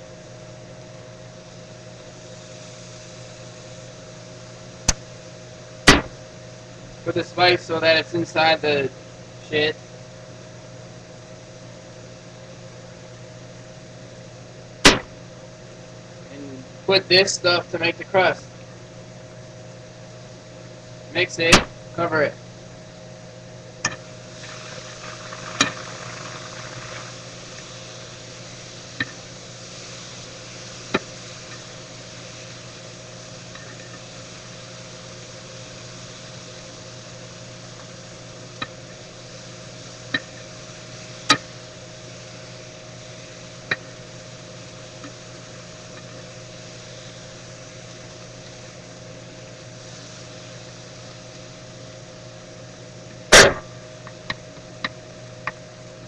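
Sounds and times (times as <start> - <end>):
food sizzling in frying pan: 0.0 - 6.8, 22.8 - 56.0
low hum: 2.2 - 7.1, 14.2 - 16.8.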